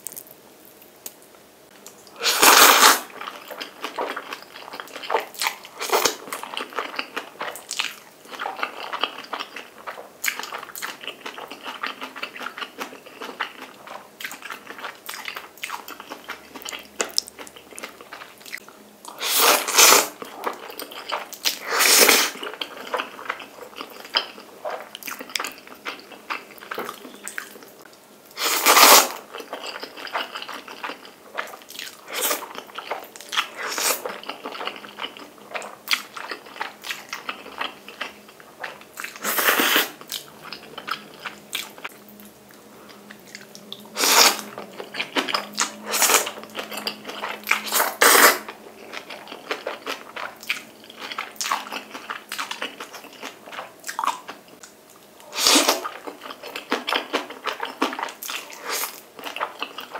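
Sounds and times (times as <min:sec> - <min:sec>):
loud noodle slurps: 0:02.2 - 0:03.1, 0:19.2 - 0:20.2, 0:21.6 - 0:22.4, 0:28.4 - 0:29.2, 0:39.2 - 0:40.0, 0:44.0 - 0:44.4, 0:47.6 - 0:48.5, 0:55.3 - 0:55.8.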